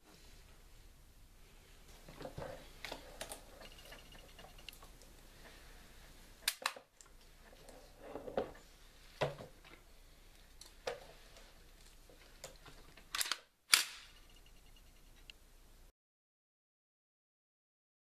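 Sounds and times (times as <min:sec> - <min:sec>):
metal gun clicks: 0:06.4 - 0:07.1, 0:12.4 - 0:14.2.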